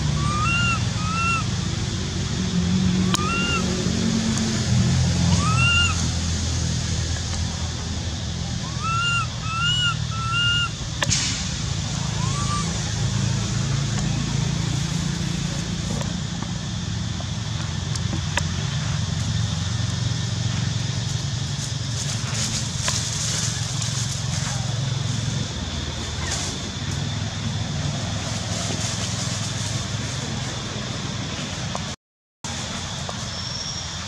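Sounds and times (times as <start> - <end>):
baby macaque crying: 0.0 - 1.5, 3.0 - 3.7, 5.3 - 6.0, 8.6 - 10.7, 12.1 - 12.8
steady low rumble: 0.0 - 32.0.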